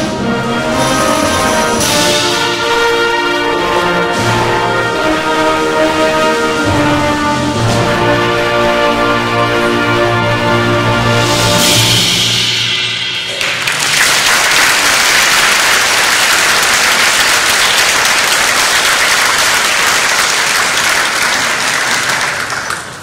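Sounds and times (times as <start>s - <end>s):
wind band chord: 0.0s - 13.3s
audience applauding: 13.3s - 23.0s.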